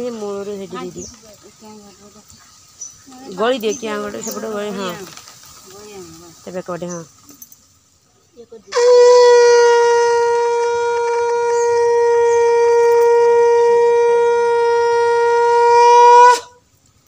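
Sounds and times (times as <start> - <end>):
conch shell blown: 8.7 - 16.6.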